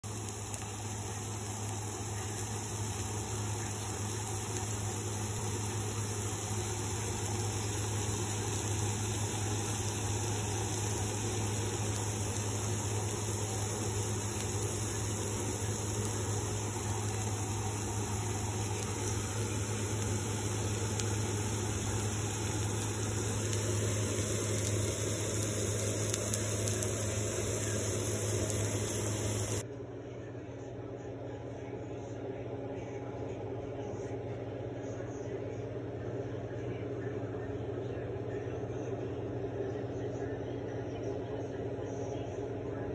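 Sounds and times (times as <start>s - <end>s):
constant hiss: 0.0s - 29.6s
steady low hum: 0.0s - 42.9s.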